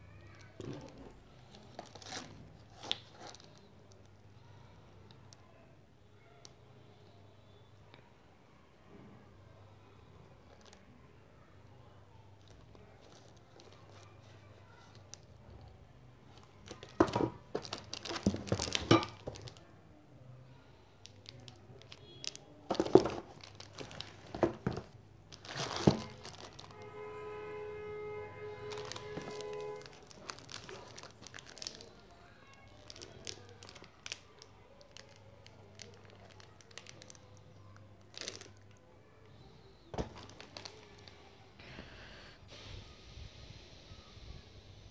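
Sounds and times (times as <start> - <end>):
plastic wrapping crinkling: 0.2 - 4.1, 12.4 - 14.1, 16.3 - 19.6, 21.0 - 26.8, 28.6 - 38.8, 39.9 - 41.3.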